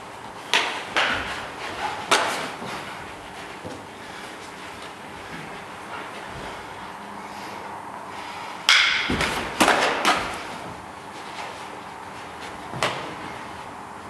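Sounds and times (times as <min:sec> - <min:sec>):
knocks and thuds of sparring: 0:00.5 - 0:03.9, 0:08.7 - 0:11.6, 0:12.6 - 0:13.5.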